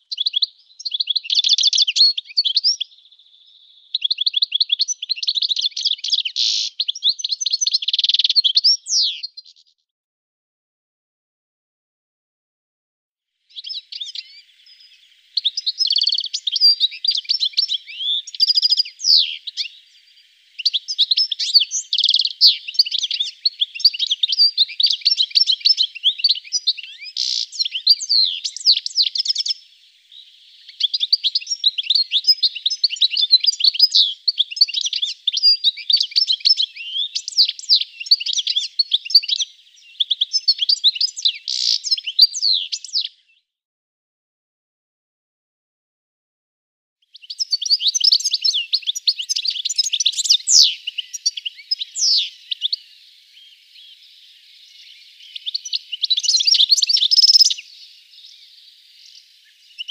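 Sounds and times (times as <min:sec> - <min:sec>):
goldfinch twittering song: 0:00.0 - 0:09.8, 0:13.5 - 0:43.4, 0:47.1 - 0:59.9.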